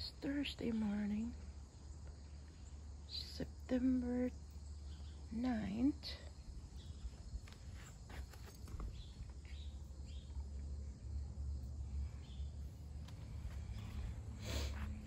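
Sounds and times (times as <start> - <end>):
soft footsteps: 7.0 - 9.5, 12.8 - 15.0.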